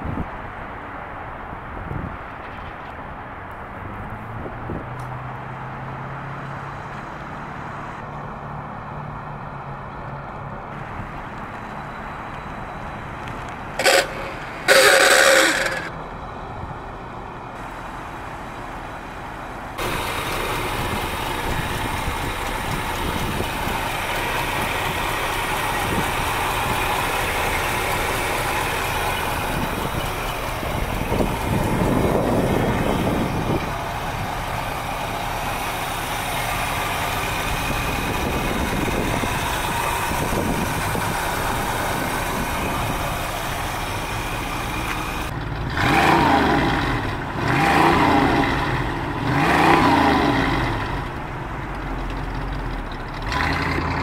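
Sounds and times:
car engine idling: 6.9 - 54.0
short loud clatter: 13.8 - 15.9.

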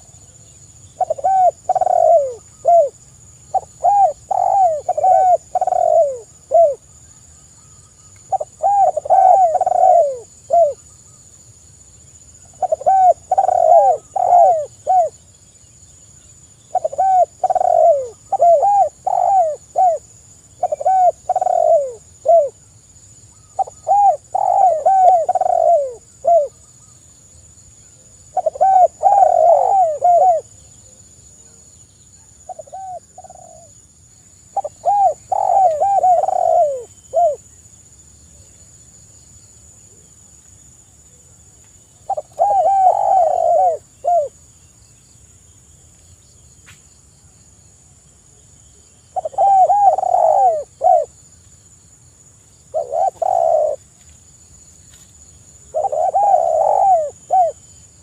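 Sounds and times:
dove cooing: 1.0 - 6.8, 8.3 - 10.8, 12.5 - 15.2, 16.7 - 20.0, 20.6 - 22.6, 23.4 - 26.6, 28.3 - 30.6, 32.5 - 33.7, 34.5 - 37.5, 42.0 - 44.4, 49.1 - 51.2, 52.7 - 53.8, 55.7 - 58.0.

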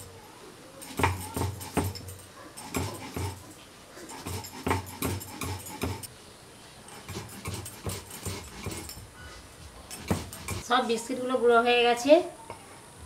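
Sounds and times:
stone grinding on stone: 0.8 - 6.1, 6.9 - 9.0, 9.9 - 10.7.

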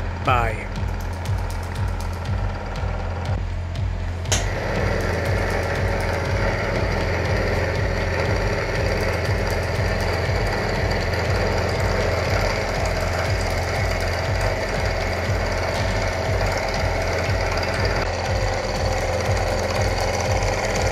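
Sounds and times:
milling machine cutting steel: 4.3 - 20.9.

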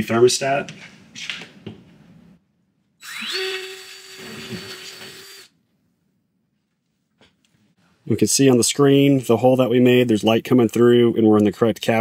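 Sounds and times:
cordless drill whining: 3.0 - 5.6.

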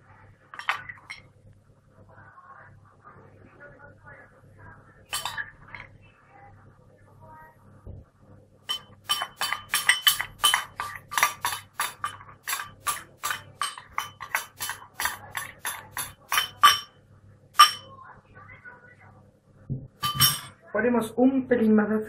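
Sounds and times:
metal spoon clinking porcelain bowl: 0.5 - 1.3, 5.1 - 5.8, 8.7 - 17.0, 17.6 - 17.9, 20.0 - 20.6.

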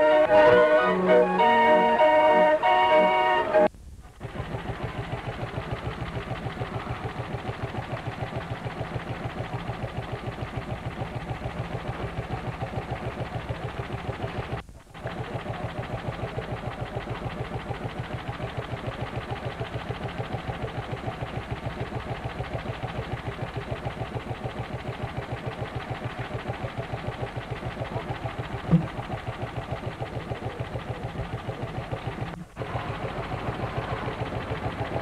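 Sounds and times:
tractor engine running: 0.0 - 35.0.

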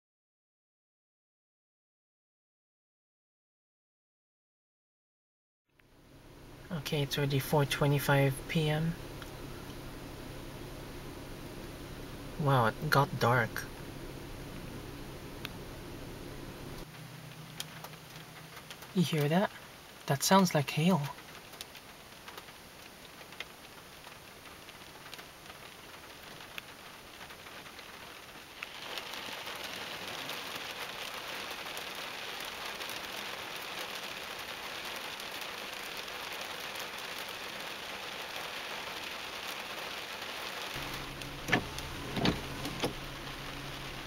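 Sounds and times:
low hum: 5.8 - 18.6, 40.8 - 44.0
rain and hail on car roof: 6.6 - 44.0
windshield wipers knocking: 40.8 - 44.0.

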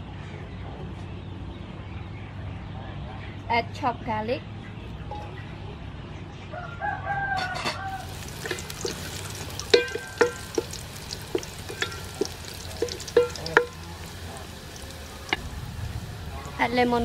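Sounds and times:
garlic sizzling in oil: 7.9 - 17.0
ladle knocking metal pot rim: 8.1 - 15.5.

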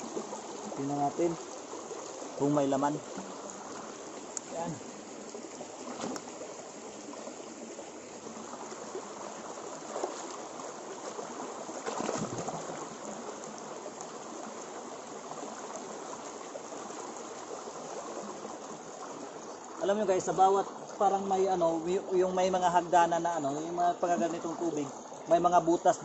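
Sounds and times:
stream running over rock: 0.0 - 26.0
hands splashing in water: 5.8 - 6.3, 11.8 - 12.7.

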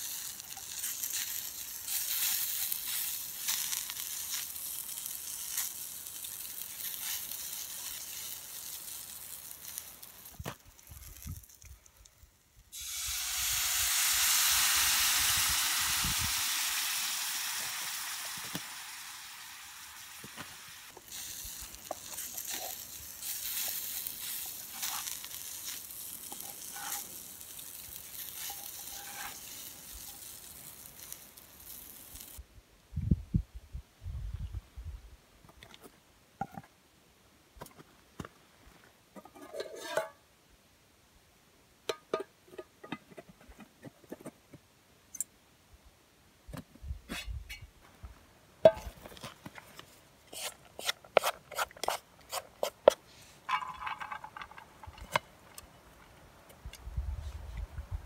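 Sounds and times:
chicken sizzling in a skillet: 0.0 - 11.6, 12.7 - 32.4
wooden spatula scraping and tapping: 26.2 - 27.1, 39.2 - 40.2, 48.6 - 56.1.

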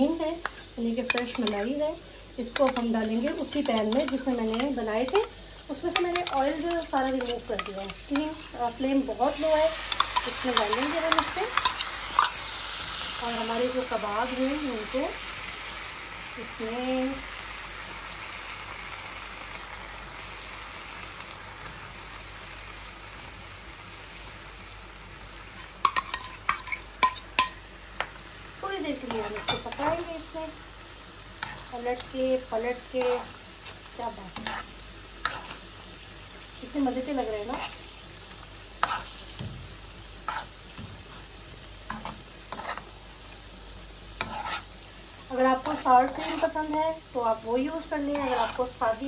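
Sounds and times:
food sizzling in a frying pan: 0.0 - 49.0.

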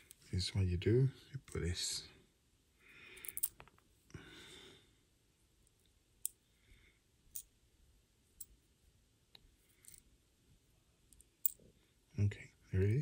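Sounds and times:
soft breath: 2.8 - 5.1.

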